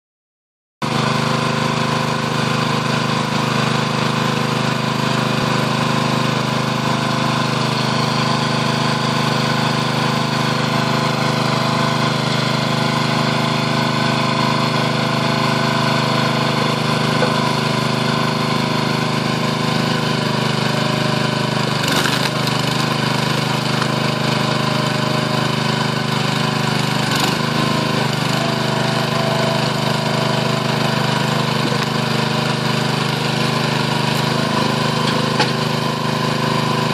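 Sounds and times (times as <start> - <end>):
small gas engine running: 0.8 - 36.9.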